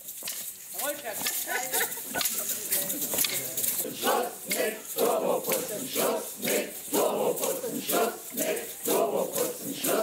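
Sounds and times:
hand-held shakers rattling: 0:00.0 - 0:10.0
crowd chanting in unison: 0:03.8 - 0:10.0.

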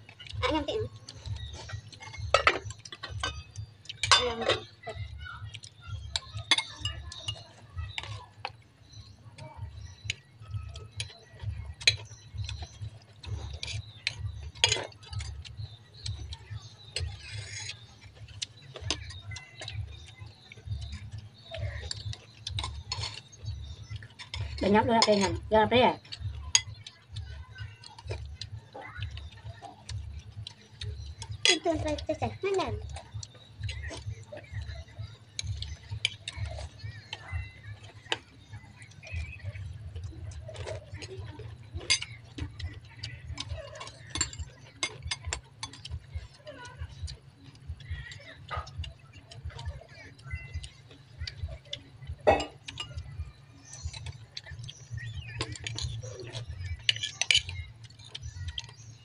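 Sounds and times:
metal spoons clinking on bowls: 0:00.1 - 0:09.1, 0:10.0 - 0:59.0.

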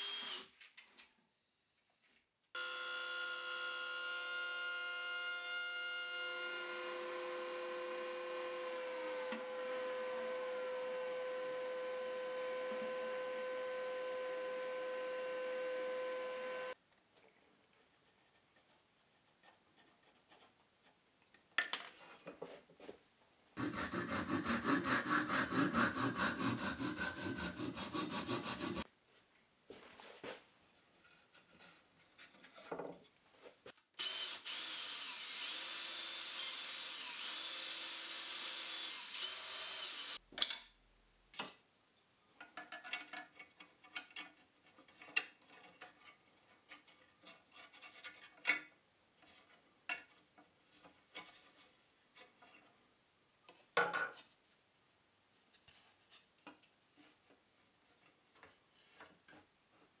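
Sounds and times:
power tool running: 0:02.6 - 0:16.8, 0:34.0 - 0:40.2
pencil scraping on wood: 0:17.9 - 0:21.0, 0:23.6 - 0:28.9.

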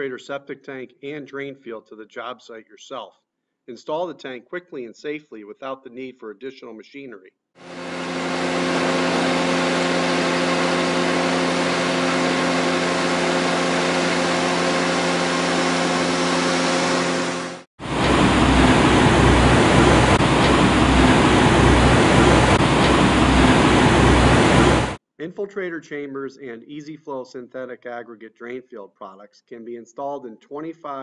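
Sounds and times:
diesel engine running: 0:07.6 - 0:25.0
mini excavator rumbling: 0:07.8 - 0:16.2, 0:17.9 - 0:25.0.

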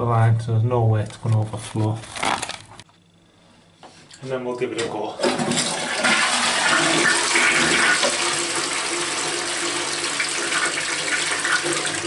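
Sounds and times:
toilet flushing: 0:04.8 - 0:12.0.

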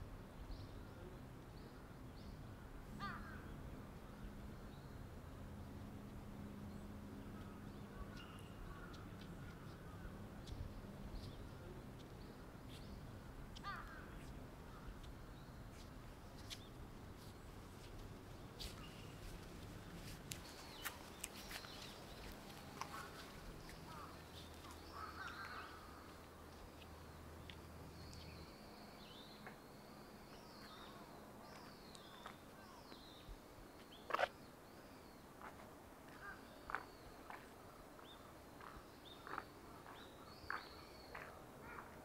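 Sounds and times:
crows cawing: 0:03.0 - 0:03.4, 0:13.6 - 0:14.1, 0:22.8 - 0:26.2, 0:36.1 - 0:36.5.

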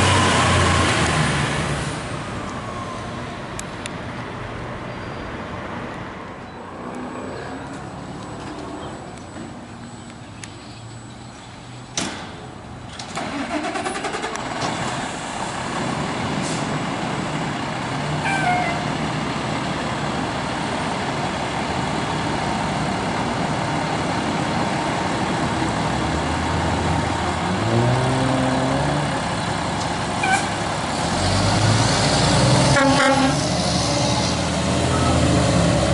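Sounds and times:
diesel engine running and revving: 0:00.0 - 0:03.3, 0:13.2 - 0:35.9.

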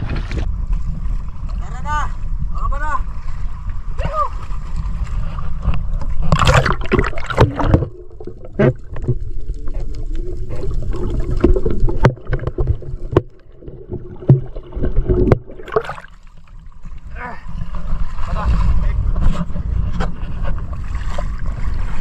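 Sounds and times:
water splashing: 0:03.0 - 0:18.9
underwater clicks: 0:05.7 - 0:16.2
bubbling: 0:06.1 - 0:16.7.

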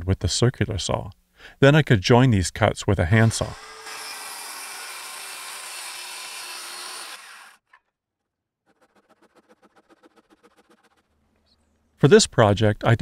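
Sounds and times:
circular saw cutting wood: 0:03.1 - 0:07.8, 0:08.6 - 0:11.2
handsaw strokes in wood: 0:03.3 - 0:07.6, 0:08.7 - 0:11.1.

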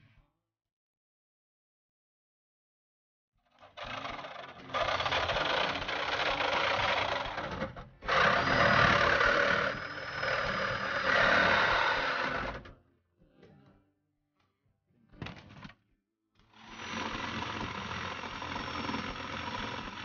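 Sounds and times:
power saw cutting sheet metal: 0:03.6 - 0:12.7, 0:16.5 - 0:20.0.

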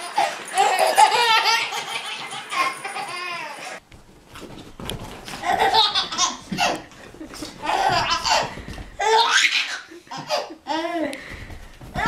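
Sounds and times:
baby laughing: 0:00.0 - 0:03.8, 0:05.4 - 0:11.1.

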